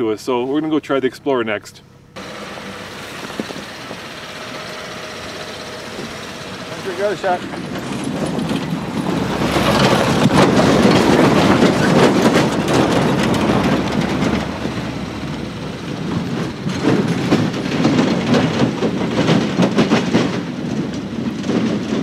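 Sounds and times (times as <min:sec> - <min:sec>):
vehicle engine running: 0:01.8 - 0:22.0
tyres crunching over gravel: 0:02.2 - 0:19.8.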